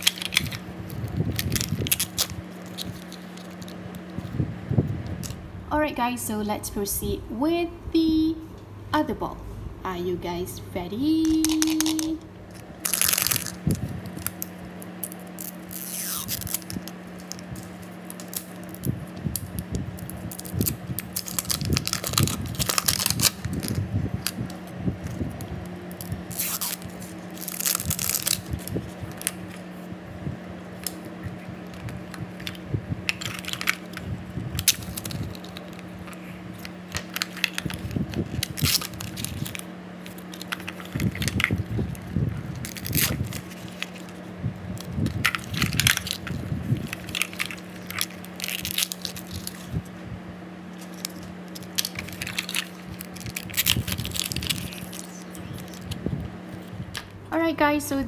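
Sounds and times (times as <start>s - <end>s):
plastic bags crinkling: 0.0s - 4.4s, 11.1s - 29.8s, 30.7s - 49.9s, 50.7s - 56.2s
plastic shrink-wrap peeling and tearing: 0.0s - 4.4s, 5.0s - 5.4s, 11.1s - 29.9s, 30.6s - 49.9s, 50.7s - 57.1s.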